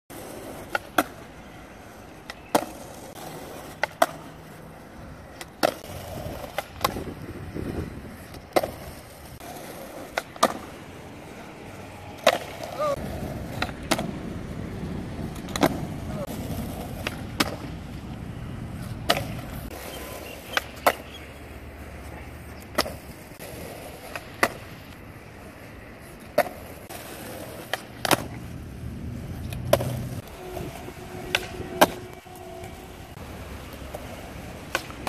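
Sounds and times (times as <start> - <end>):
skateboard wheels rumbling on concrete: 0.1 - 35.0
skateboard landings clacking: 3.7 - 4.3, 9.5 - 10.8, 13.4 - 14.2, 15.3 - 18.0, 18.8 - 19.7, 27.6 - 28.5, 33.8 - 35.0
skateboard tail pops: 3.7 - 4.3, 5.3 - 7.3, 8.3 - 8.8, 10.1 - 10.7, 13.5 - 14.2, 15.3 - 17.8, 18.8 - 21.3, 22.6 - 23.2, 24.0 - 25.0, 27.6 - 28.4, 29.4 - 30.4, 31.2 - 32.2, 34.6 - 35.0.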